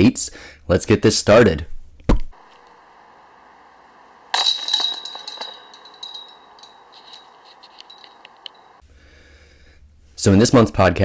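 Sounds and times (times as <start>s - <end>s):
disc striking metal chains: 2.4s - 8.8s
chains jingling and rattling: 4.3s - 8.8s.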